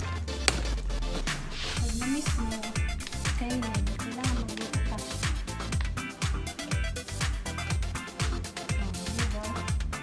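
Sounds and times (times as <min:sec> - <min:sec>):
deep kick drum: 0:00.4 - 0:10.0
synth melody: 0:00.8 - 0:08.9.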